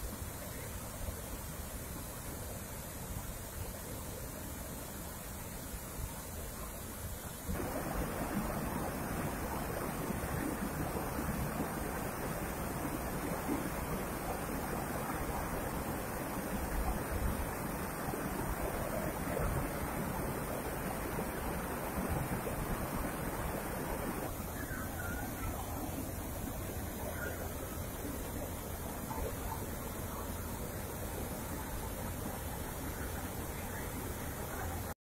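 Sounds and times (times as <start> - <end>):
waterfall rushing: 7.5 - 29.0.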